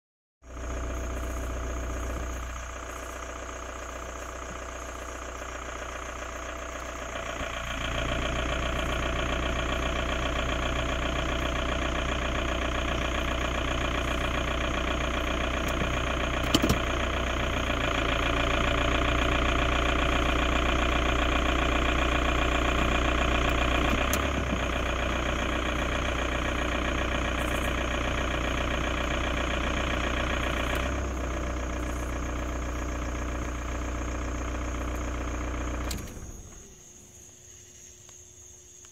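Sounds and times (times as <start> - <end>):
diesel car engine idling: 0.4 - 37.2
sharp click: 16.4 - 16.8.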